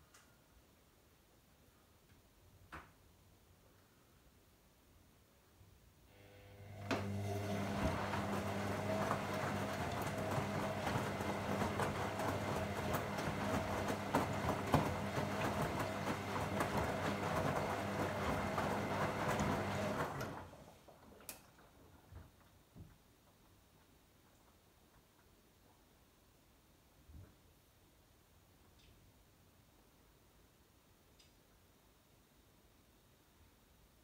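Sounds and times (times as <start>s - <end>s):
washing machine motor humming: 6.1s - 22.3s
laundry and water sloshing: 7.0s - 22.9s.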